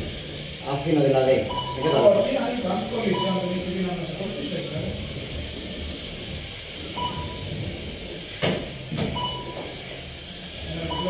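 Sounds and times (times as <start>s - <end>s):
steady hiss: 0.0s - 11.0s
short electronic beeps: 1.4s - 2.2s, 3.1s - 3.7s, 7.0s - 7.5s, 9.2s - 9.6s.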